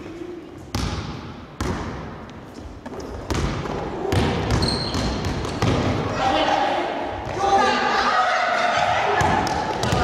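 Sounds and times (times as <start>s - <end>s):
basketball bouncing on wooden floor: 2.9s - 5.9s, 9.2s - 10.0s.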